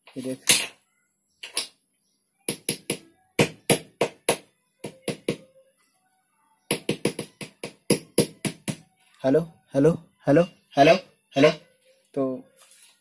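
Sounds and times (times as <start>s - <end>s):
fingers tapping microphone: 6.7s - 8.8s.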